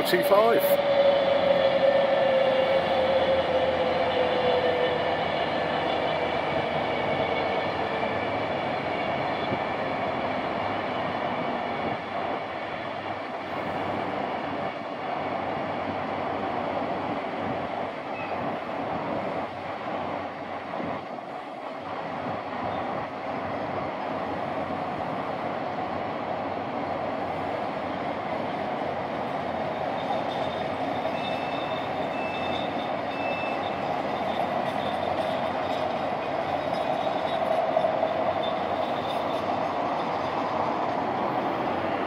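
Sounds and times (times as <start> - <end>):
locomotive droning note: 0.0 - 12.0
freight wagons rumbling on rails: 0.0 - 42.0.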